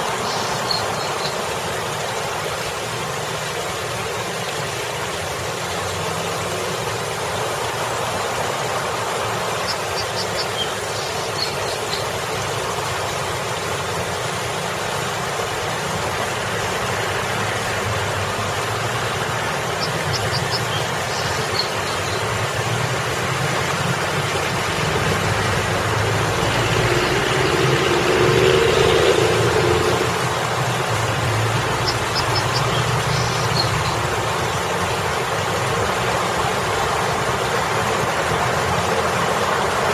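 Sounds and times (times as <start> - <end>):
road traffic rumble: 0.0 - 39.9
water splashing in fountain: 0.0 - 39.9
vehicle passing close: 22.8 - 34.4.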